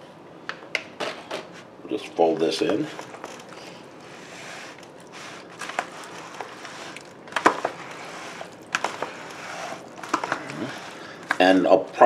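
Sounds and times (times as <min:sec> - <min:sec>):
salad squishing and leaf rustle: 0:02.6 - 0:11.4.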